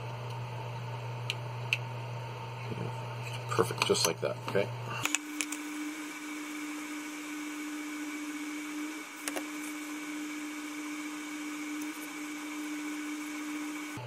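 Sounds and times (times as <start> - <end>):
motor hum with hiss: 4.3 - 14.0.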